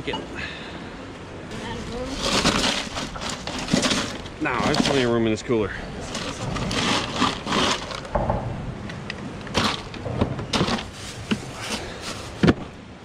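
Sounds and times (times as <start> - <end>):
cans and bottles rattling in cooler: 1.8 - 5.3, 6.0 - 8.4, 9.4 - 12.6.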